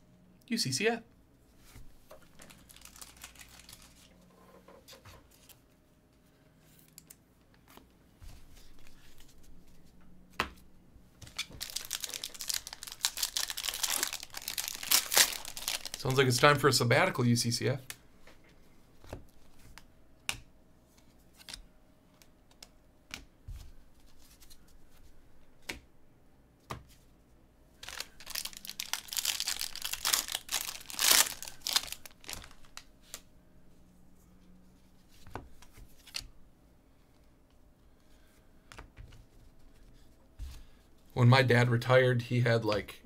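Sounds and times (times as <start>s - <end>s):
foil pack tearing and crinkling: 2.4s - 4.1s, 11.3s - 16.1s, 27.8s - 32.8s.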